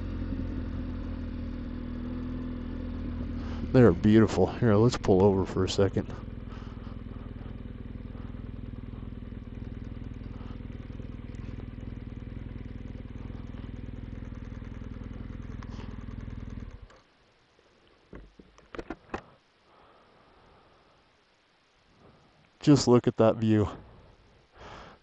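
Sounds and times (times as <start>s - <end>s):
motorcycle engine running: 0.0s - 17.1s.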